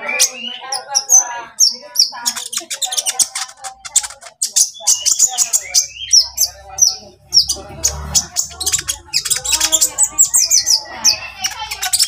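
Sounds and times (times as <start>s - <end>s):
sunbird chirping and whistling: 4.0s - 12.0s.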